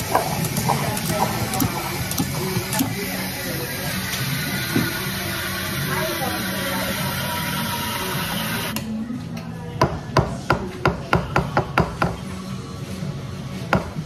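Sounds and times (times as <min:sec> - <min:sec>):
steam wand hissing: 0:00.0 - 0:08.7.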